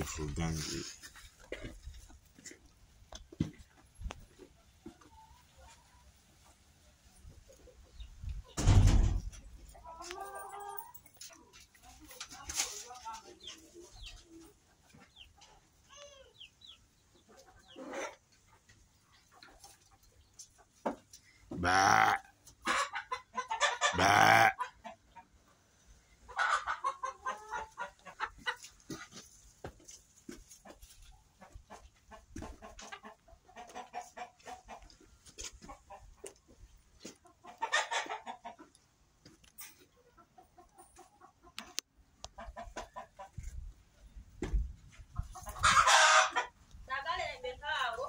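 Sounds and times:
chickens clucking: 0:00.0 - 0:48.0
loud drawn-out animal calls: 0:21.6 - 0:22.3, 0:23.9 - 0:24.6.

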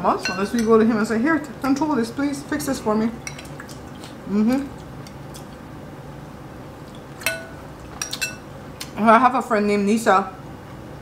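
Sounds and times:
metal spoon clinking glass bowl: 0:00.2 - 0:00.9, 0:07.2 - 0:08.5.

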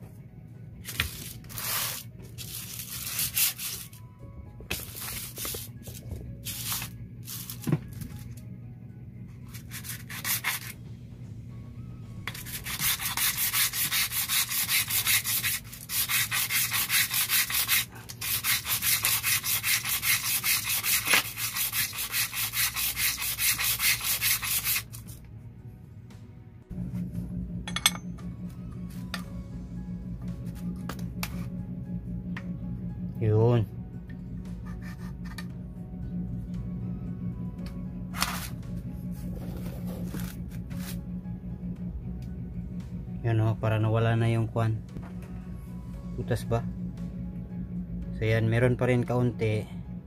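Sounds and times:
metal part sanding on sandpaper: 0:01.0 - 0:04.0, 0:06.4 - 0:07.6, 0:09.5 - 0:10.8, 0:12.3 - 0:25.2.

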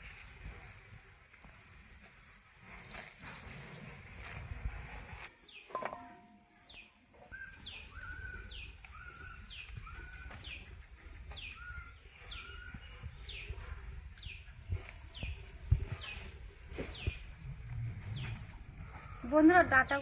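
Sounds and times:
bird calling: 0:05.5 - 0:13.5.

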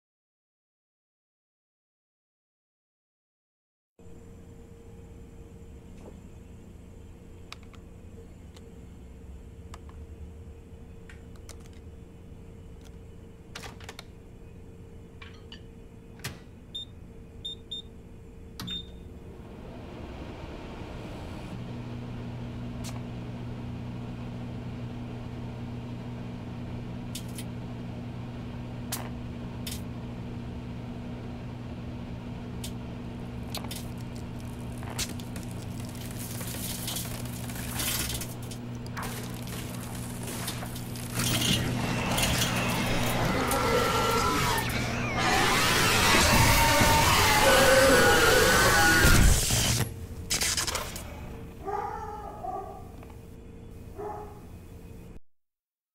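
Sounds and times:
microwave oven humming: 0:04.0 - 0:55.2
microwave keypad beeps: 0:16.8 - 0:17.9, 0:18.6 - 0:19.0.

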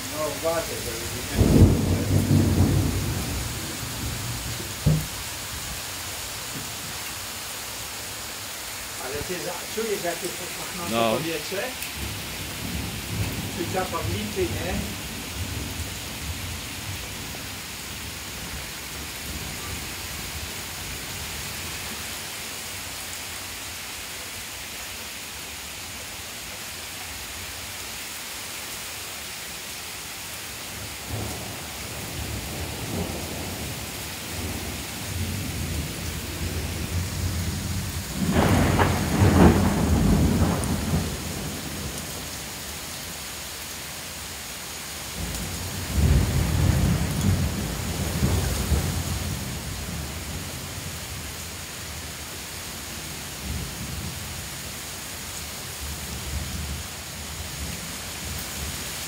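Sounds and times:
heavy rain pouring: 0:00.0 - 0:59.0
thunder rumbling: 0:00.1 - 0:05.3, 0:09.0 - 0:17.0, 0:34.4 - 0:42.0, 0:45.2 - 0:50.6
loud thunder peal: 0:00.5 - 0:05.2, 0:38.1 - 0:41.6.

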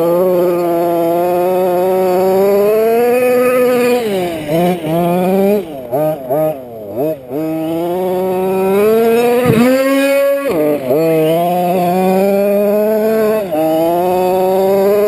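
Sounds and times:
two-stroke engine revving: 0:00.0 - 0:15.0.

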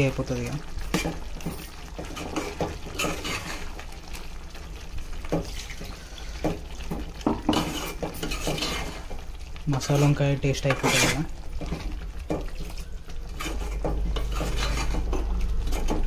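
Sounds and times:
spoon scraping metal pot: 0:00.8 - 0:03.8, 0:07.5 - 0:09.1, 0:09.8 - 0:11.9, 0:13.3 - 0:16.0.

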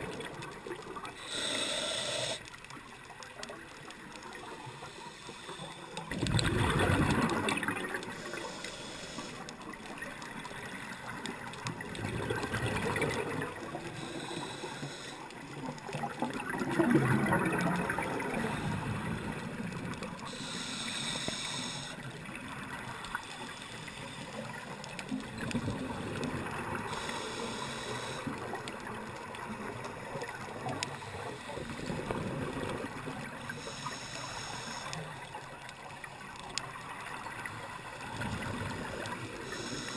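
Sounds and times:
exhaled bubbles gurgling underwater: 0:00.0 - 0:39.9
regulator inhalation hiss: 0:01.2 - 0:02.5, 0:04.8 - 0:06.1, 0:08.0 - 0:09.6, 0:13.9 - 0:15.4, 0:20.2 - 0:22.2, 0:26.8 - 0:28.5, 0:30.9 - 0:31.9, 0:33.5 - 0:35.2, 0:39.4 - 0:39.9.

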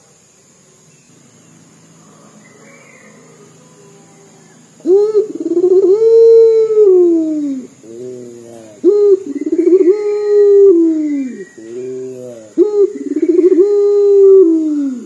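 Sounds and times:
dove cooing loudly: 0:04.8 - 0:15.0.

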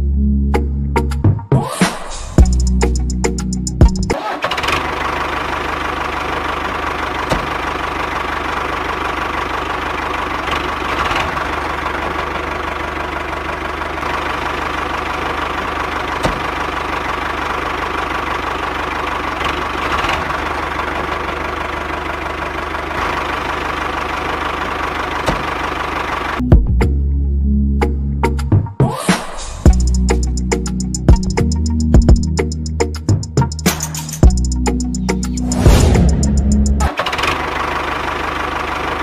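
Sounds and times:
diesel engine idling with knock: 0:02.4 - 0:26.8, 0:29.7 - 0:39.0.

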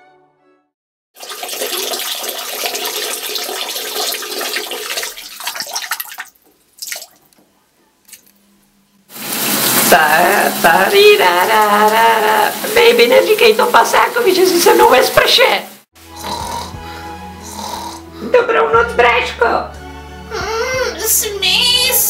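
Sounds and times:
water running: 0:01.2 - 0:07.5, 0:09.1 - 0:16.6
brief splashes: 0:04.8 - 0:07.3
shower spray: 0:09.1 - 0:16.6.

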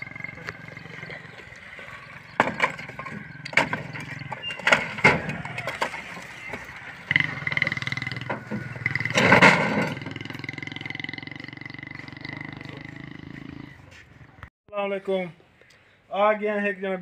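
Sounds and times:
wood knocking and cracking: 0:02.4 - 0:06.7
bricks clattering: 0:02.4 - 0:06.8.

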